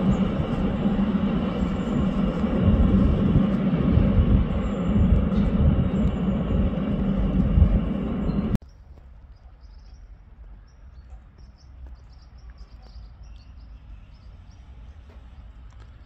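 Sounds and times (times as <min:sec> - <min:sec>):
low background rumble: 0:00.0 - 0:08.6
small birds chirping: 0:00.0 - 0:14.7.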